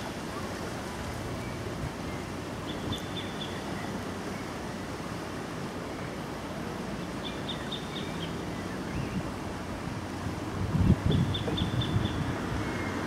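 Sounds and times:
fast-flowing river water: 0.0 - 13.0
wind: 0.0 - 13.0
bird chirping: 1.4 - 4.5, 7.2 - 9.2.

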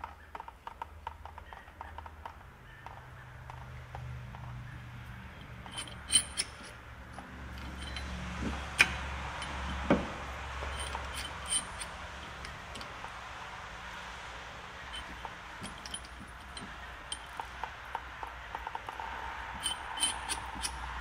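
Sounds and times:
metallic tool clicks: 5.4 - 10.0, 15.0 - 21.0.

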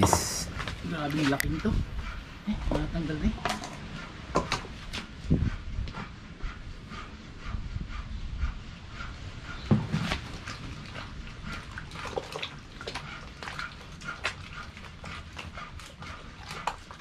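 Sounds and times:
hands kneading wet octopus: 9.9 - 17.0.

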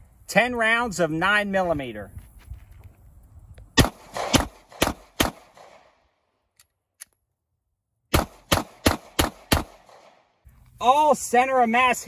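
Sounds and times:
pistol shots with echo: 3.8 - 6.0, 8.1 - 10.3.

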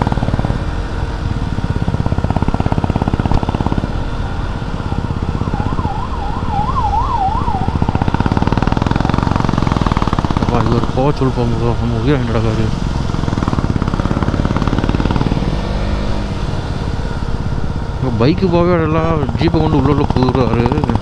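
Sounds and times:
motorcycle engine running: 0.0 - 21.0
siren warbling: 3.8 - 9.5.

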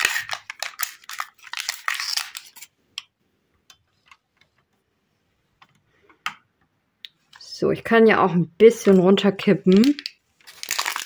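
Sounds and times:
plastic film crinkling: 0.0 - 2.7, 8.8 - 11.0.

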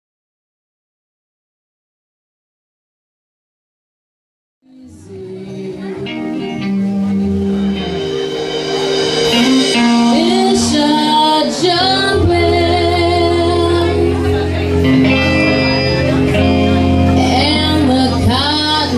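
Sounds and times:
woman singing lead vocal: 4.7 - 8.0, 9.3 - 15.3, 17.1 - 18.9
rock band playing: 4.9 - 18.9.

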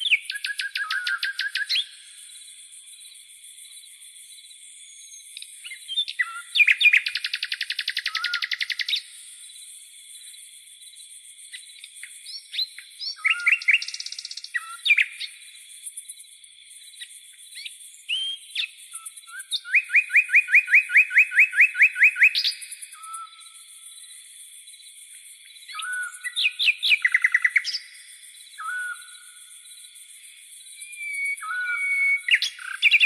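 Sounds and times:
crickets trilling: 0.0 - 33.0
songbird singing: 0.0 - 33.0.

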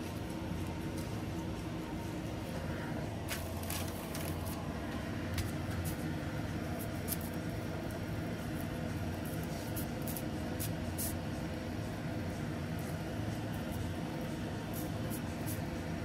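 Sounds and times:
steady low hum: 0.0 - 16.0
gloved hands handling rice and seaweed: 3.1 - 6.2.

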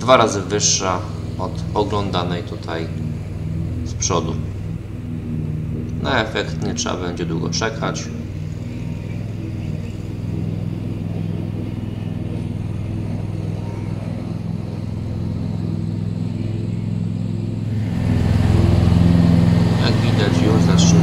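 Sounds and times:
lawn tractor mowing: 0.0 - 21.0.

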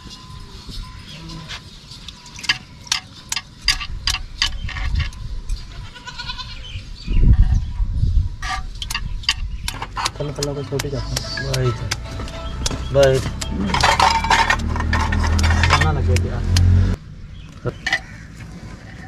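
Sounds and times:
low rumbling: 6.6 - 19.0.

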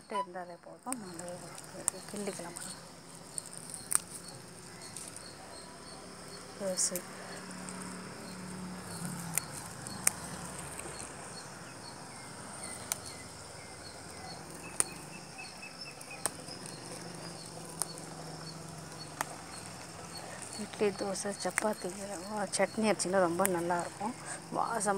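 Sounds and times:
faint high chirping: 0.0 - 7.4
scissors snipping stems: 0.9 - 5.3, 6.6 - 8.0, 8.8 - 11.2, 12.6 - 13.3, 14.1 - 15.1, 16.0 - 24.9.

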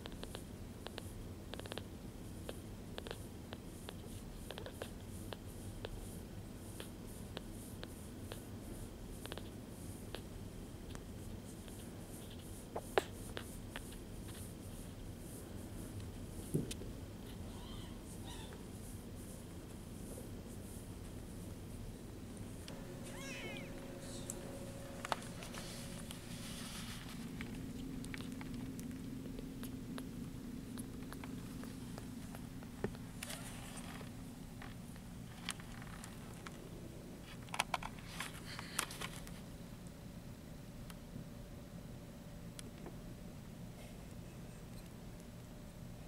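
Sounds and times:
kitten purring: 0.0 - 14.0, 22.9 - 34.2
kitten mewing: 17.4 - 18.6, 23.0 - 24.4
rustling on a blanket: 22.4 - 28.7.

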